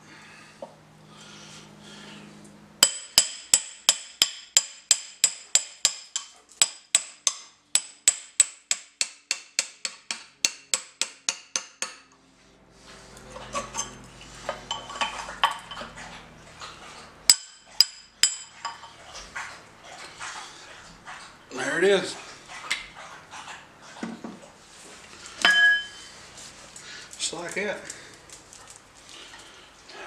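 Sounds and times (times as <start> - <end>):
hammer striking steel punch: 2.8 - 12.0, 17.3 - 18.5.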